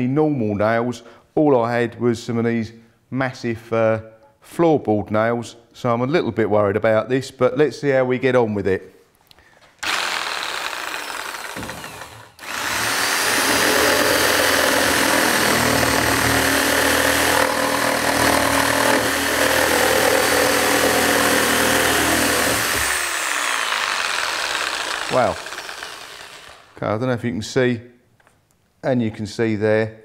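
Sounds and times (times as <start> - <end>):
reciprocating saw cutting wood: 9.8 - 26.8.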